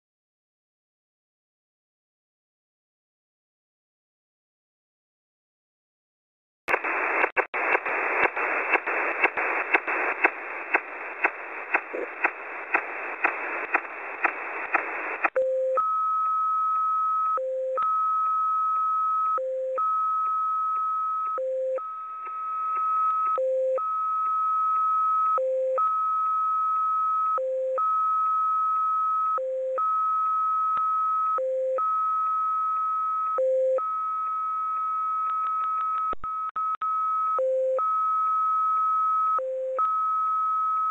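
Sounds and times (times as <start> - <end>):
regular radio clicks: 6.7 - 15.4, 22.1 - 23.4, 34.2 - 36.8
shortwave receiver hiss: 6.7 - 15.4.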